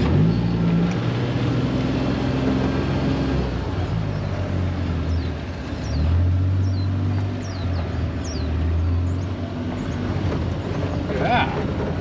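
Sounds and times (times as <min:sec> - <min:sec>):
utility vehicle engine humming: 0:00.0 - 0:12.0
bird chirping: 0:03.9 - 0:10.1.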